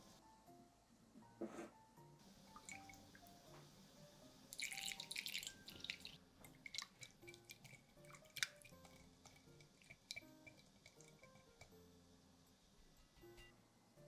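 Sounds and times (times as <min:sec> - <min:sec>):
oil pouring and splashing: 0:04.5 - 0:11.6.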